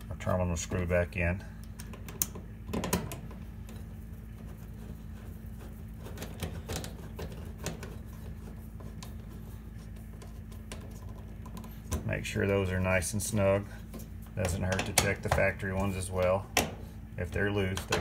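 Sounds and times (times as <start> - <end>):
steady low hum: 0.0 - 18.0.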